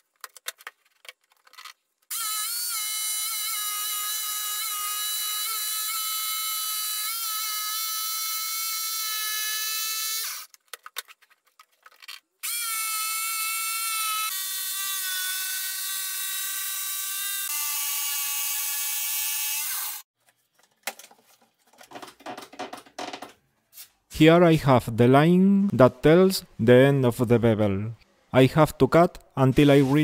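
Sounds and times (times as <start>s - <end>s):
jigsaw motor whine: 2.1s - 10.5s, 12.4s - 20.0s.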